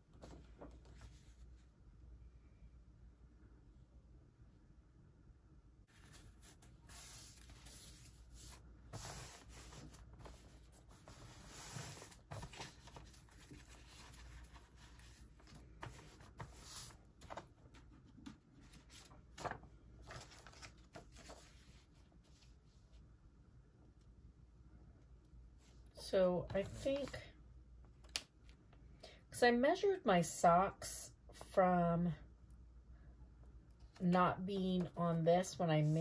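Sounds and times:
paper rustling and crinkling: 5.9 - 22.4.

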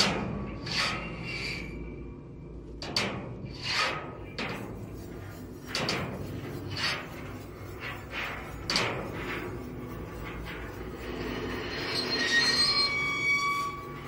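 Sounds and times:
brush strokes on metal dumpster: 3.0 - 14.0.

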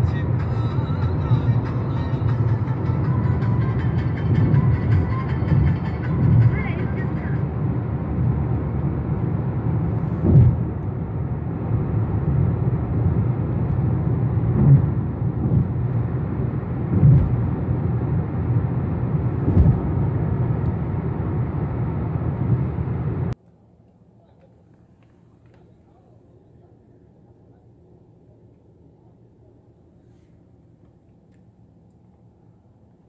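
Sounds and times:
car road and engine rumble: 0.0 - 33.0
short low thumps: 10.2 - 10.7, 19.4 - 19.9.

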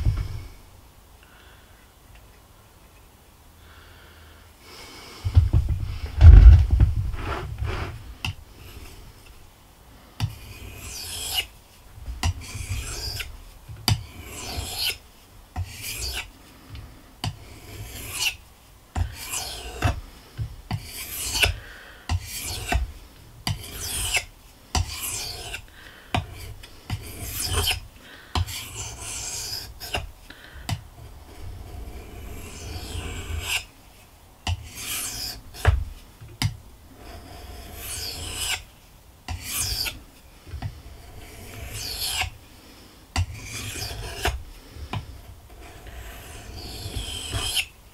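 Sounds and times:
dull low thuds: 0.0 - 0.6, 5.2 - 8.1
knife scraping on whetstone: 7.1 - 8.0, 10.2 - 11.5, 12.2 - 15.0, 15.6 - 16.3, 17.2 - 18.4, 19.0 - 20.0, 20.7 - 22.9, 23.5 - 27.8, 28.4 - 30.1, 31.0 - 33.7, 34.5 - 35.8, 37.0 - 38.7, 39.3 - 42.4, 43.2 - 47.7.

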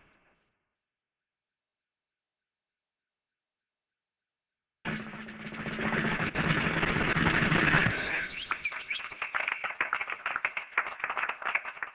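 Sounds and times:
rising bird-like chirps: 7.9 - 9.8.

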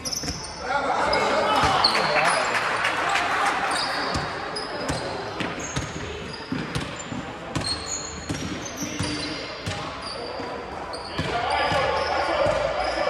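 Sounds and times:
sneakers squeaking on floor: 0.0 - 2.6, 3.6 - 13.0
basketball bouncing on wooden court: 0.1 - 0.5, 4.1 - 9.9, 11.1 - 12.7.

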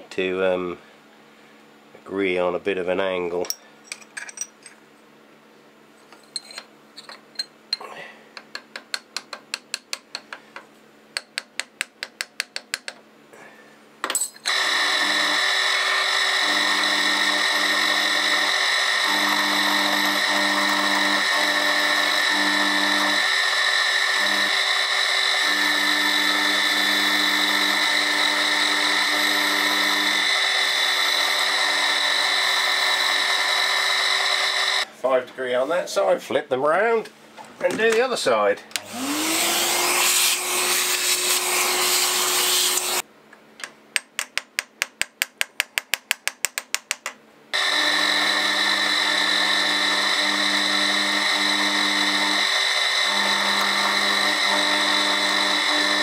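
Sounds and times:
milling machine cutting steel: 14.5 - 34.9, 38.8 - 43.0, 47.6 - 56.0.

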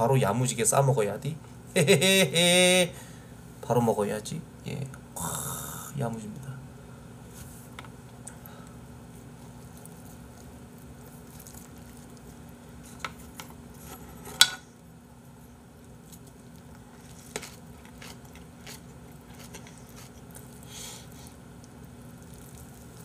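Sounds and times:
quiet chewing: 8.1 - 13.9, 15.3 - 23.0.

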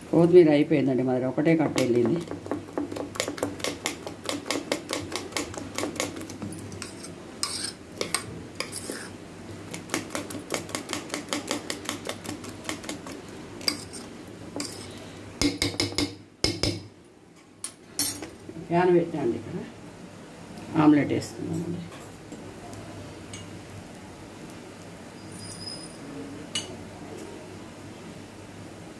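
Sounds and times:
spoon knocking bowl: 15.4 - 16.8.

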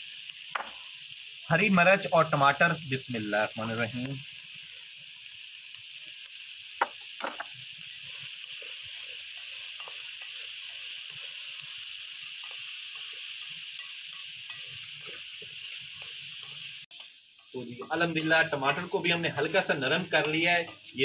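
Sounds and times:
food sizzling in a pan: 0.0 - 21.0
wooden spoon scraping a pan: 6.8 - 16.7.

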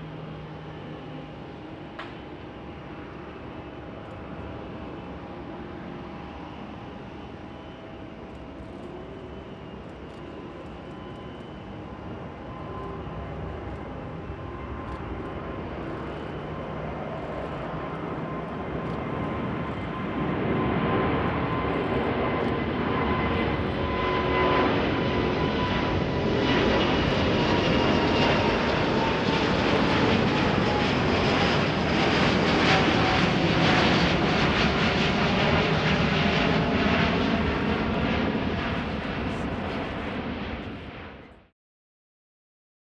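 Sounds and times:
jet airliner roar with whine: 0.0 - 41.5.

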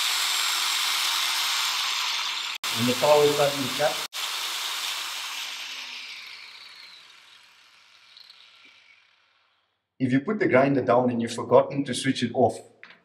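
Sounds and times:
angle grinder spinning down: 0.0 - 9.7.

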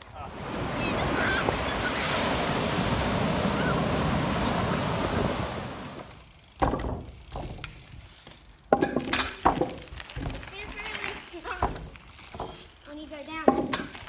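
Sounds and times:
surf breaking on beach: 0.0 - 6.2
wind on microphone: 0.2 - 6.1
bike knocking on wooden ramp: 6.5 - 12.7, 13.3 - 14.0.

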